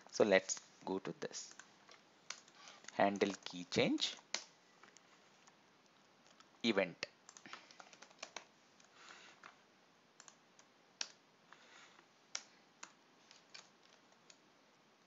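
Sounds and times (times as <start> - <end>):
faint keyboard keystrokes: 1.5 - 5.6, 7.3 - 9.6, 12.3 - 14.4.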